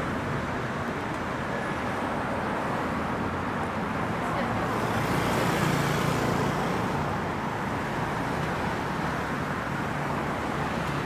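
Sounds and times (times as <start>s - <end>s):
tyre road noise: 0.0s - 11.0s.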